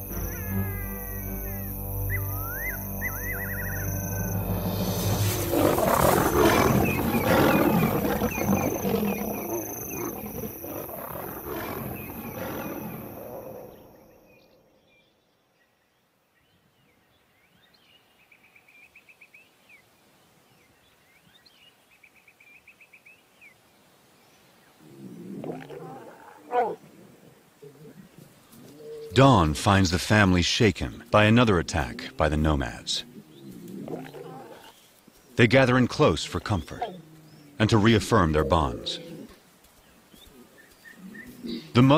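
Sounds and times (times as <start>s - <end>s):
faint high trilling calls: 0.0s - 11.0s
lions roaring: 4.2s - 14.1s, 24.8s - 29.1s, 33.0s - 34.8s, 36.6s - 39.4s.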